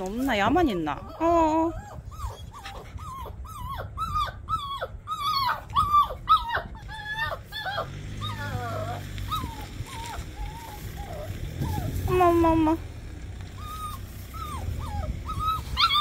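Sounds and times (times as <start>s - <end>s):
puppy yelping and whimpering: 0.2s - 12.8s, 13.6s - 16.0s.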